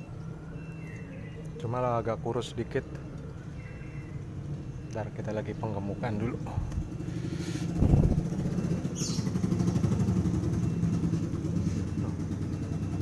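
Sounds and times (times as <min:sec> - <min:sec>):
motorcycle engine idling: 0:03.0 - 0:13.0.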